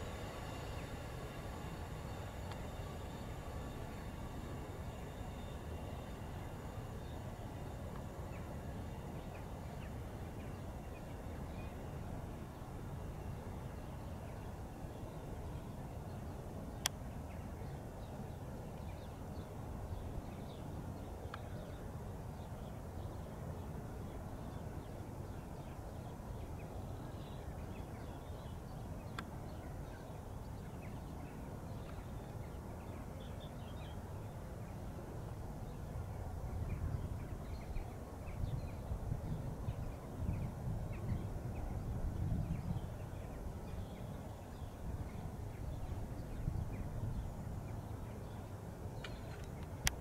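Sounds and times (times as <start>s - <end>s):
steady low rumble: 0.0s - 22.3s.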